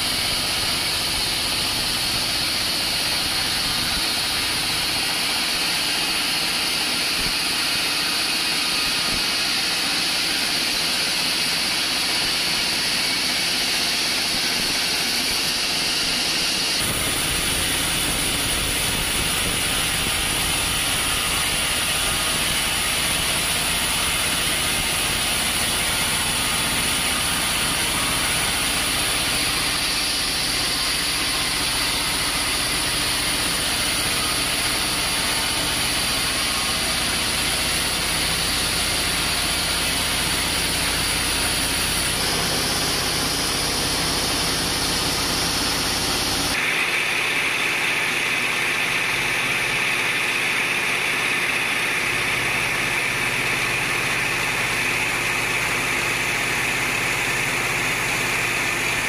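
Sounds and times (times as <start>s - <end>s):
band saw cutting log: 0.0s - 59.0s
high whine: 12.3s - 49.0s.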